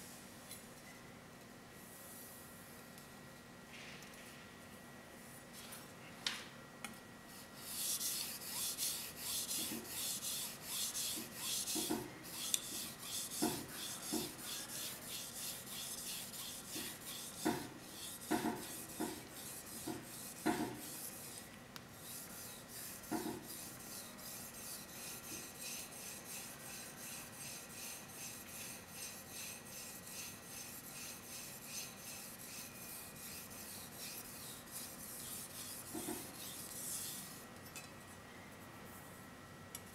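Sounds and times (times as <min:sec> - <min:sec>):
knife scraping on whetstone: 0:07.6 - 0:37.4.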